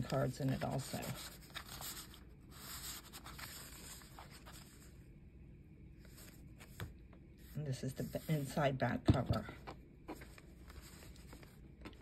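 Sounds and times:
page turning: 0:00.0 - 0:04.9, 0:06.0 - 0:07.0, 0:10.1 - 0:12.0
paper rustling and scraping: 0:00.0 - 0:05.0, 0:10.1 - 0:12.0.

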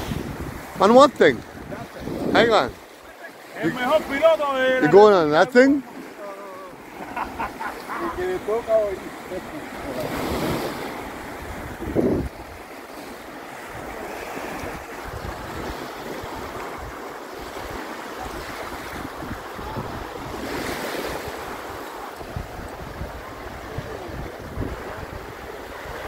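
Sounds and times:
wind buffeting microphone: 0:00.0 - 0:02.9, 0:08.2 - 0:12.7, 0:13.5 - 0:26.0
small waves washing on sand: 0:00.0 - 0:26.0.

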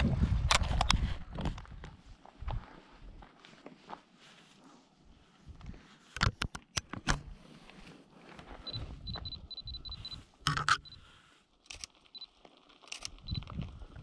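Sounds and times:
camera shutter clicking: 0:12.9 - 0:13.3.

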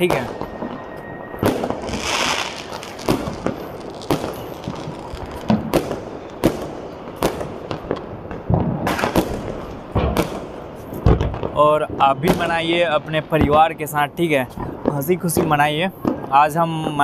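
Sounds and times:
fireworks bangs and cracks: 0:00.0 - 0:17.0.

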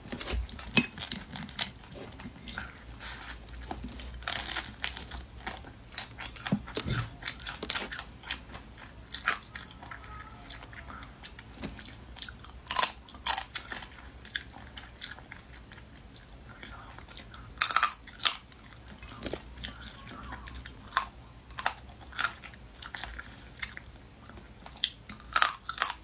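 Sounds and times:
chewing: 0:00.1 - 0:26.0
crayfish shells cracking: 0:03.6 - 0:08.6.

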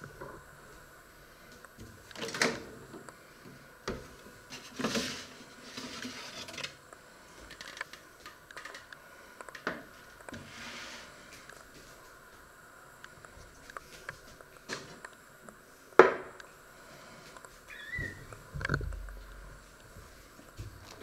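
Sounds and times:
metal tray scraping clatter: 0:04.5 - 0:06.7.

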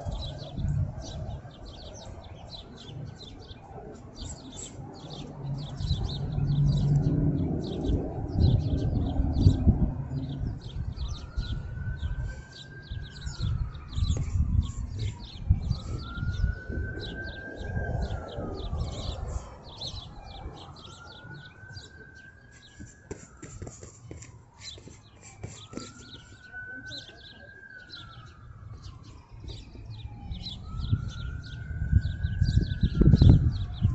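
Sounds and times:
birds chirping: 0:00.0 - 0:33.9
rising and falling whistle: 0:25.5 - 0:33.9.

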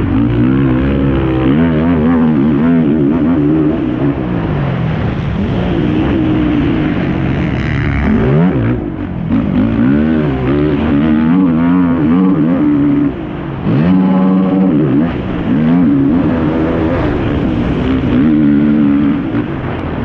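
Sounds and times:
quad engine revving: 0:00.0 - 0:20.0.

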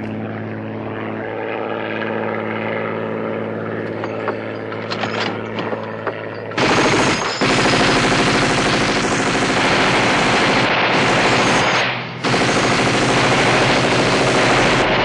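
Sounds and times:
machine gun automatic fire: 0:04.0 - 0:15.0.

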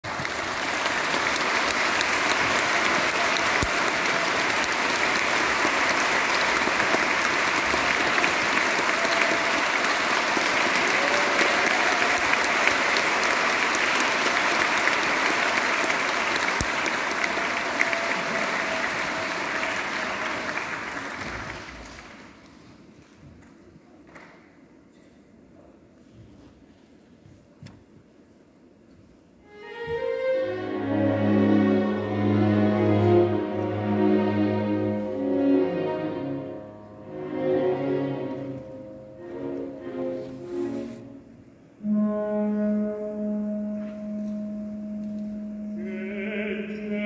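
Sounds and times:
audience applauding: 0:00.0 - 0:22.6.

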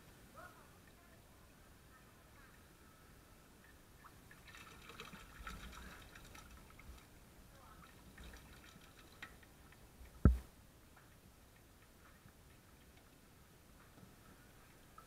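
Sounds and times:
sharp knock: 0:10.2 - 0:10.4.

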